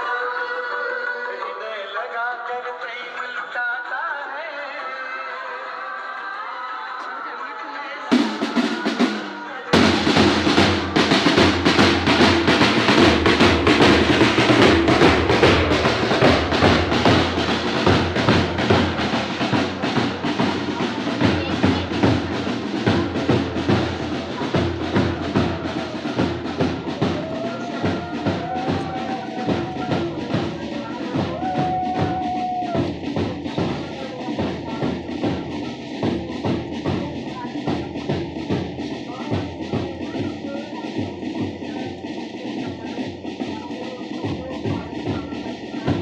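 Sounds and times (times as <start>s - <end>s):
side drums marching rhythm: 8.1s - 46.0s.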